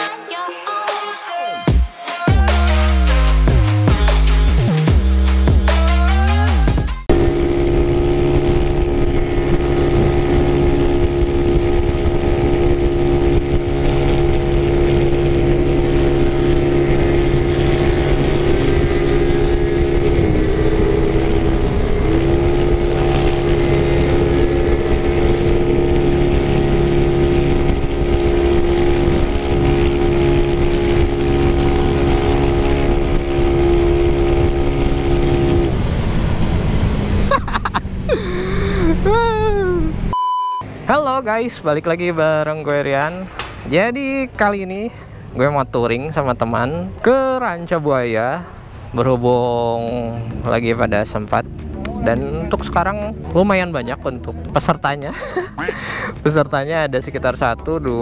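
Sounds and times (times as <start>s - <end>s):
scooter engine running: 7.0s - 40.1s, 49.9s - 58.0s.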